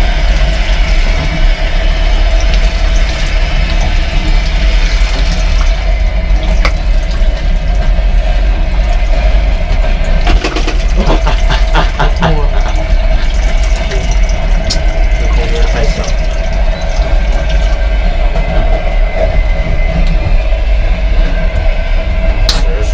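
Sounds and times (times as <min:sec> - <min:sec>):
tap water running into sink: 0:00.0 - 0:08.0, 0:08.8 - 0:17.9
moving train rumble: 0:00.0 - 0:22.9.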